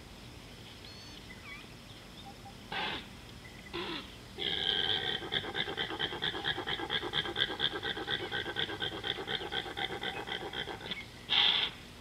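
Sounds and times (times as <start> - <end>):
wild animal call: 2.7 - 11.8.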